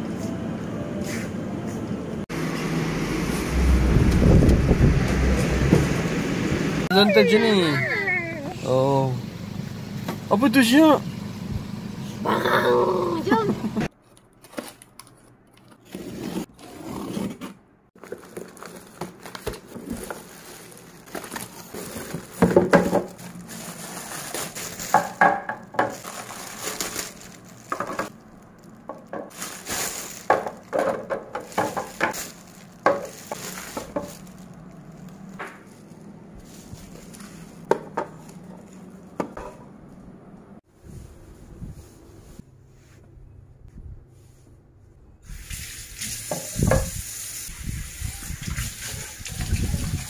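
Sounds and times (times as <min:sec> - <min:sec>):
plastic wrap crinkling: 0:18.0 - 0:38.8.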